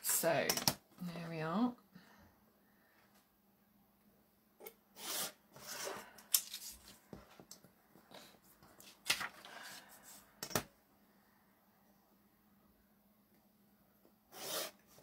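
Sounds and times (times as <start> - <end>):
paper rustling: 8.6 - 10.2
knife cutting paper: 14.3 - 15.0.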